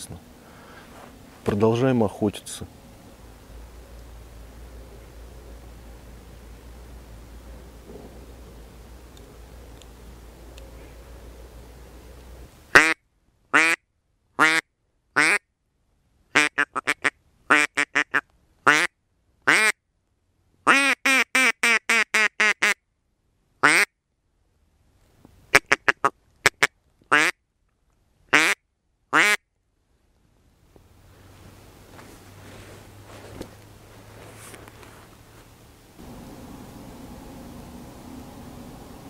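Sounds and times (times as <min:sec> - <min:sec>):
duck call quacking: 0:12.7 - 0:13.0, 0:13.6 - 0:13.8, 0:14.4 - 0:14.6, 0:15.2 - 0:15.4, 0:16.3 - 0:18.9, 0:19.5 - 0:19.8, 0:20.7 - 0:22.8, 0:23.6 - 0:23.9, 0:25.5 - 0:27.4, 0:28.3 - 0:29.4.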